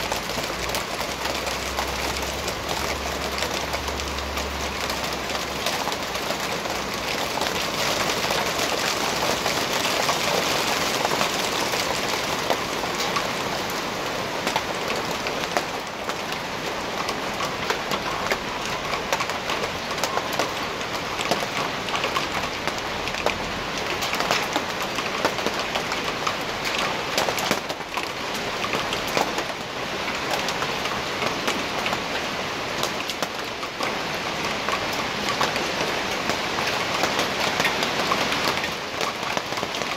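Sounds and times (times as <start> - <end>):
hailstones clicking: 0.0 - 16.4, 32.8 - 39.9
hail and rain falling: 0.0 - 39.9.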